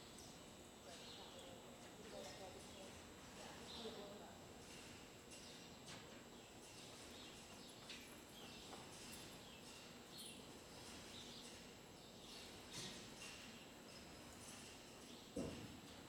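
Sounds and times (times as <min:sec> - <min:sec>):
small birds chirping: 0:05.3 - 0:12.9.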